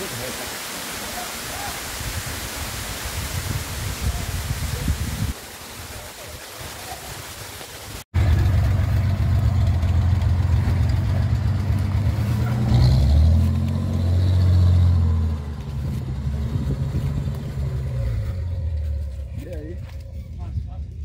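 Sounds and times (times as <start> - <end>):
buggy engine revving: 8.2 - 20.0.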